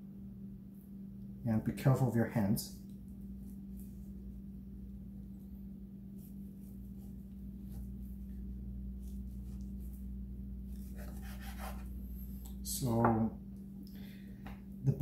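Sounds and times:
steady low hum: 0.0s - 15.0s
knife blade scraping meat: 10.7s - 11.9s.

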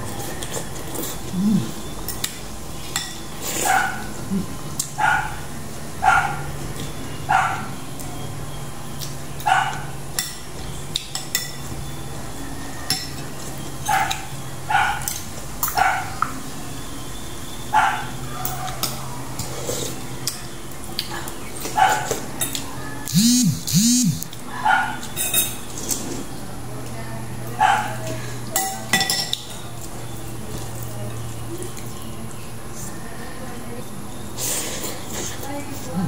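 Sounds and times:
dog barking: 3.6s - 4.1s, 5.0s - 5.4s, 6.0s - 6.5s, 7.3s - 7.8s, 9.4s - 9.9s, 13.9s - 15.1s, 15.7s - 16.2s, 17.7s - 18.8s, 21.8s - 22.1s, 24.5s - 25.0s, 27.6s - 28.0s.

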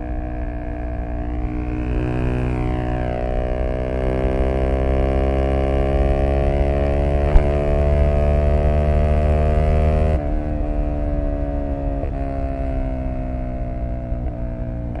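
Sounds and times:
scooter engine revving: 6.9s - 8.5s
brief knock: 7.3s - 7.8s.

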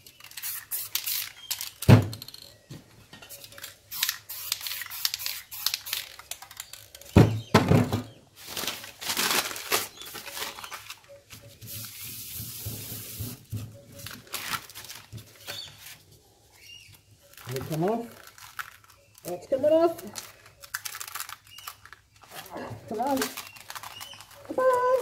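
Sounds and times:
aerosol spray can hissing: 0.3s - 1.3s, 3.9s - 6.1s, 11.7s - 13.4s
paper rustling: 8.4s - 12.0s, 13.9s - 16.2s, 17.2s - 25.0s.

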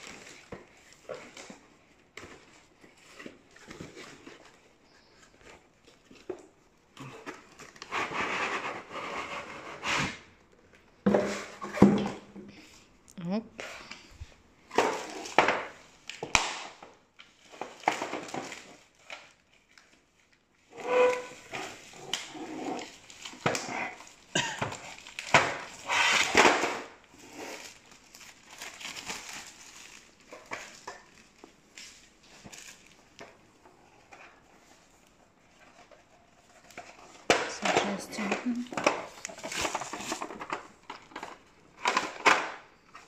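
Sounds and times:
gift packaging crinkling and tearing: 14.0s - 42.8s.

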